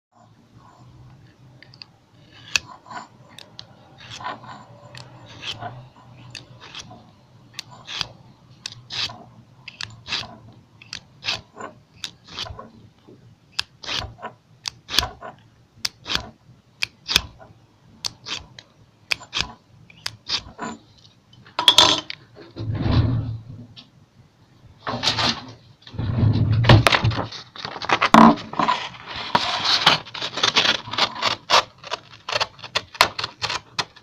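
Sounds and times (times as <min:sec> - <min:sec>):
knife scraping through sharpener: 0:02.2 - 0:07.0, 0:07.6 - 0:12.7, 0:17.1 - 0:20.8.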